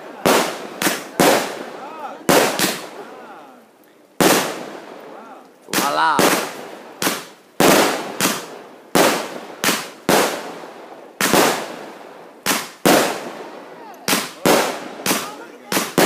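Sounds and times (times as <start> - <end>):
fireworks bangs: 0.0 - 3.4, 4.2 - 16.0.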